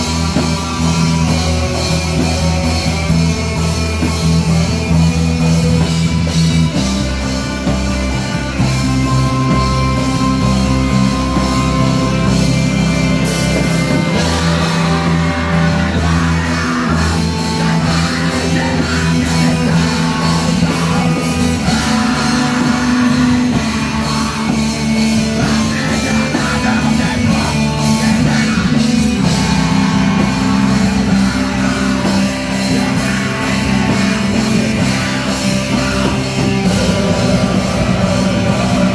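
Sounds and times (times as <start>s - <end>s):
bass guitar: 0.0s - 38.9s
distorted electric guitars: 0.0s - 38.9s
drums: 0.0s - 38.9s
keyboard: 0.0s - 38.9s
person singing: 13.1s - 38.9s.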